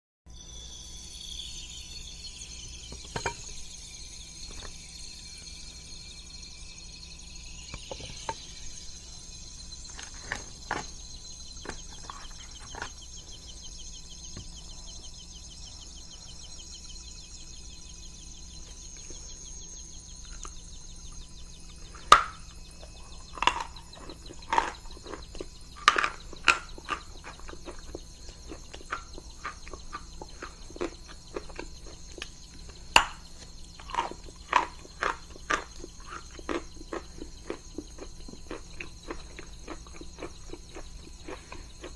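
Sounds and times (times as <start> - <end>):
chalk crunchy chewing: 23.2 - 41.9.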